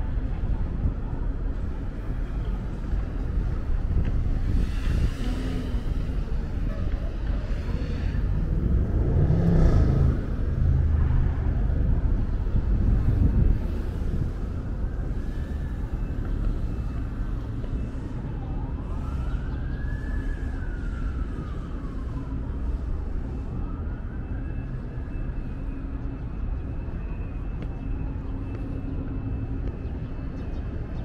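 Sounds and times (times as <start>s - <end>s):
steady low rumble: 0.0s - 24.0s
emergency vehicle siren wailing: 0.2s - 31.0s.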